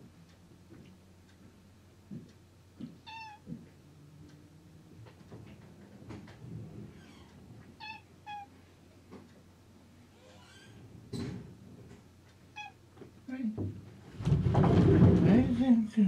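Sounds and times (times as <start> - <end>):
cat meowing: 3.0 - 3.6, 7.0 - 8.6, 12.5 - 12.8
soft bumps and knocks: 13.0 - 15.6.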